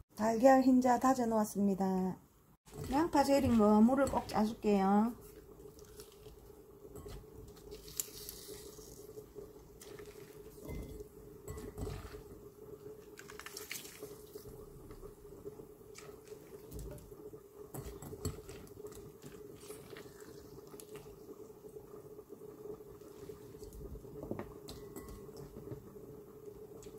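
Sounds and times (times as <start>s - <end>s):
wet squelching of onion: 2.7s - 11.0s, 11.6s - 14.8s.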